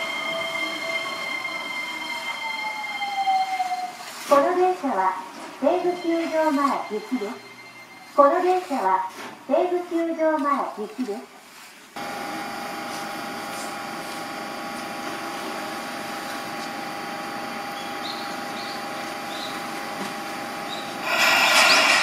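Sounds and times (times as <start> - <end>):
train electrical hum with whine: 12.0 - 22.0
rushing noise: 21.0 - 22.0.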